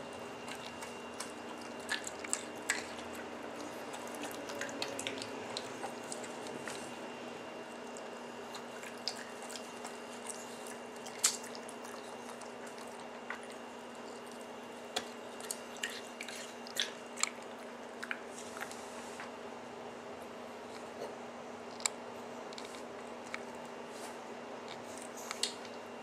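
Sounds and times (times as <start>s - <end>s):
dog licking wet smacking: 0.2s - 7.0s, 7.7s - 18.8s.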